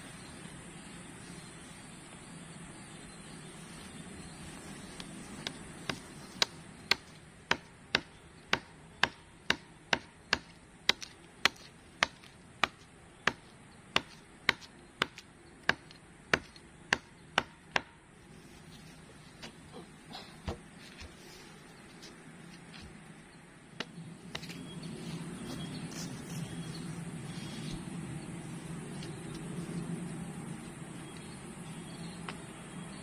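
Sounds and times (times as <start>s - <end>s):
wood being chopped: 5.4s - 18.0s.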